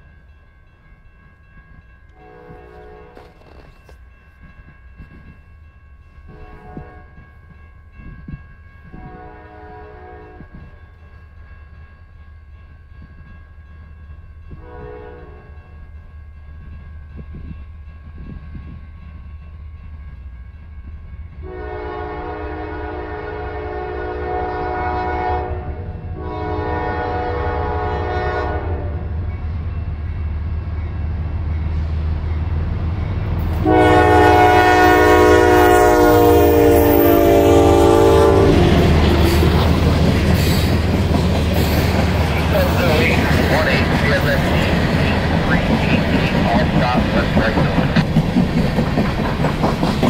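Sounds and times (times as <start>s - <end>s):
diesel locomotive engine rumble: 0.0s - 50.0s
multi-note air horn blasts: 21.4s - 29.0s, 33.6s - 38.8s.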